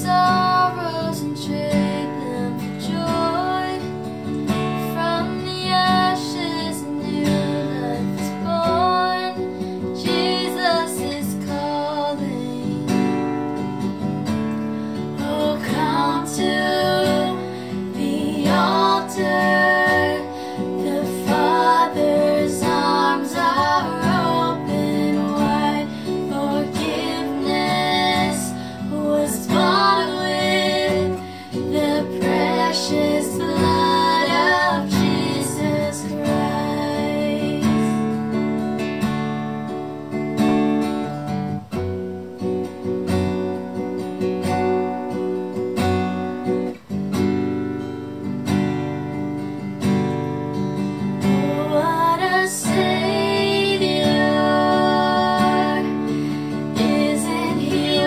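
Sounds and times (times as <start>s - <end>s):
women singing: 0.0s - 13.7s, 14.9s - 38.3s, 51.2s - 58.0s
acoustic guitar strumming: 0.0s - 58.0s.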